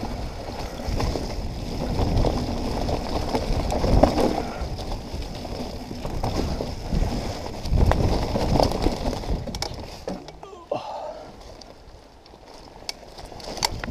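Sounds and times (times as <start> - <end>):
wind rumble on microphone: 0.0 - 10.1, 13.2 - 13.9
bike rattling: 0.0 - 13.9
bike knocking over bumps: 0.6 - 10.4.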